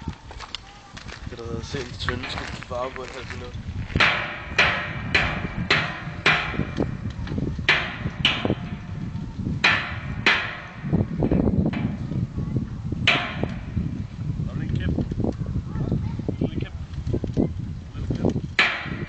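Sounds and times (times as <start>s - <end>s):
hammer striking metal drum: 4.0s - 7.0s, 7.7s - 12.2s, 13.0s - 14.0s, 18.6s - 19.0s.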